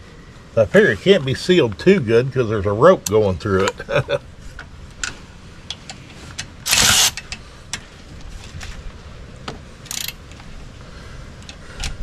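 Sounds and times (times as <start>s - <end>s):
ratchet rasping: 6.7s - 7.4s, 9.9s - 10.2s.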